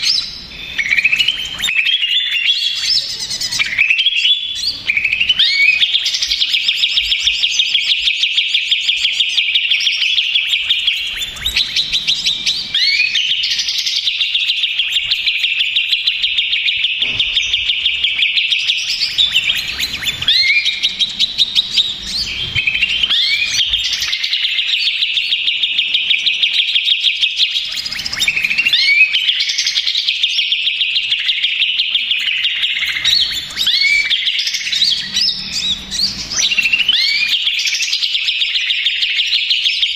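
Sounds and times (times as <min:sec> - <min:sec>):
bird chattering song: 0:00.0 - 0:39.9.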